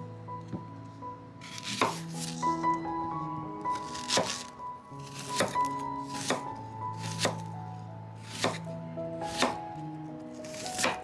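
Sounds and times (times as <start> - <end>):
knife cutting on cutting board: 1.4 - 2.5, 3.7 - 7.5, 8.2 - 8.7, 9.3 - 9.6, 10.4 - 11.0.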